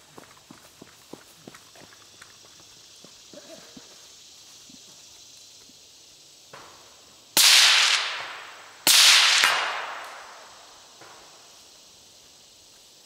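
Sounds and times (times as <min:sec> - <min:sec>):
rifle shots echoing: 0:07.4 - 0:10.6.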